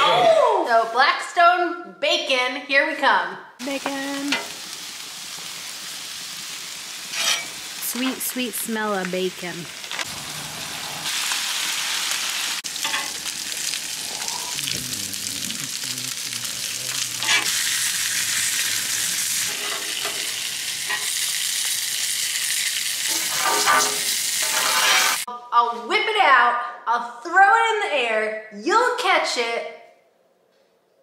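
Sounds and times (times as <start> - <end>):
bacon sizzling on a griddle: 3.6 - 25.3.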